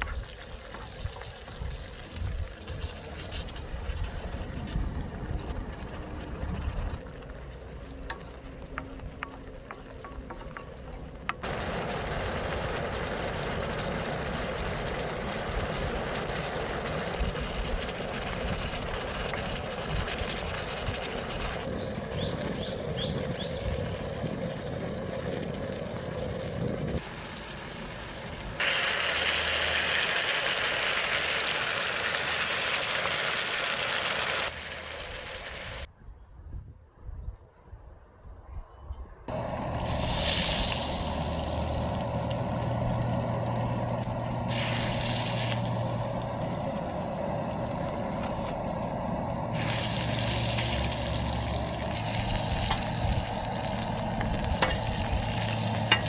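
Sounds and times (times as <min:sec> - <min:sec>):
fish sizzling on a griddle: 0:00.0 - 0:06.3, 0:06.9 - 0:35.9, 0:39.3 - 0:56.0
wooden spatula stirring: 0:07.2 - 0:11.4.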